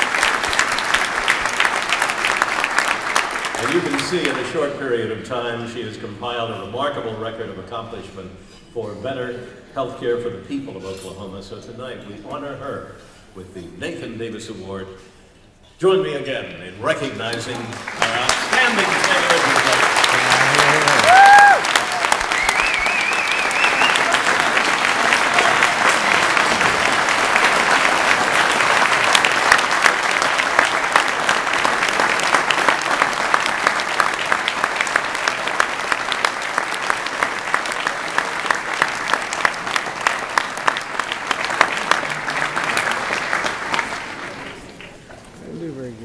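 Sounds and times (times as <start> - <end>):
audience applauding: 0.0 - 4.6, 17.4 - 45.1.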